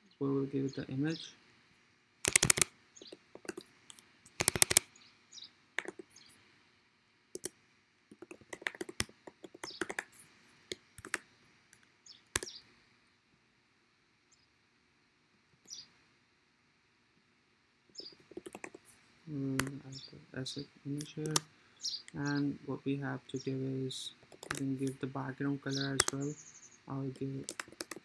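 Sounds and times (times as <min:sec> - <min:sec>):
typing on computer keyboard: 0:02.2 - 0:03.6, 0:04.3 - 0:04.8, 0:05.8 - 0:06.1, 0:08.1 - 0:10.2, 0:11.0 - 0:11.2, 0:18.2 - 0:18.9, 0:24.2 - 0:24.9, 0:26.0 - 0:26.2, 0:27.4 - 0:28.0.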